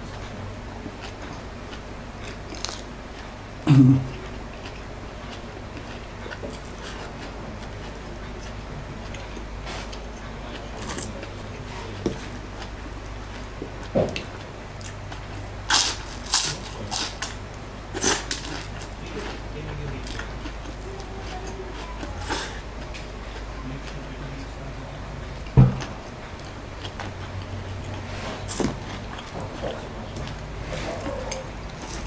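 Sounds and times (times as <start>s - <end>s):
chewing crispy food: 0.1s - 32.0s.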